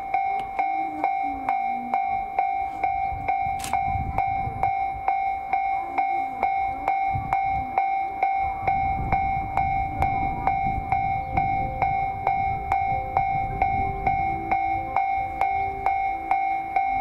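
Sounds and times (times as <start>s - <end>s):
level crossing bell ringing: 0.0s - 17.0s
low rumbling: 6.4s - 17.0s.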